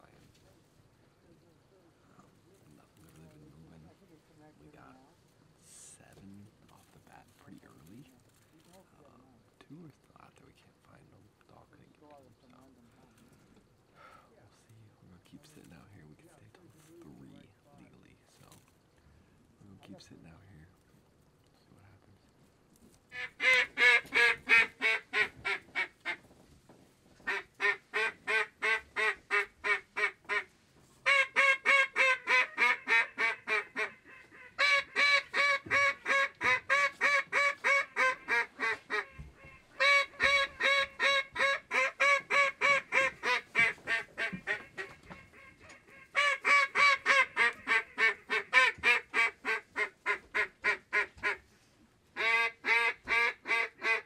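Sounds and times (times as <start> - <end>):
duck call quacks: 23.1 - 26.2, 27.2 - 51.4, 52.2 - 54.0.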